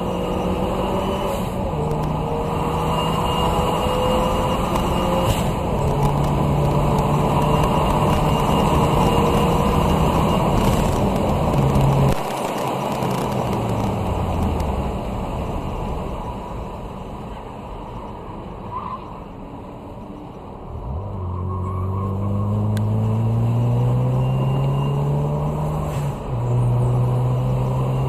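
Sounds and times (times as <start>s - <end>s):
car engine at full throttle: 0.0s - 18.6s, 19.6s - 28.0s
wind and road noise: 0.0s - 28.0s.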